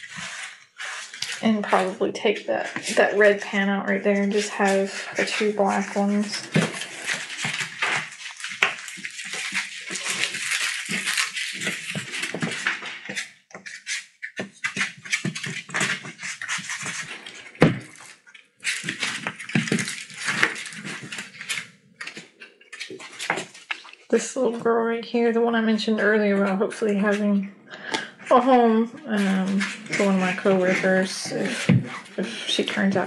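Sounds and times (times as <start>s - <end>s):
puppy claws clicking and scrabbling: 0.0s - 24.1s
scrapes and knocks: 0.0s - 33.0s.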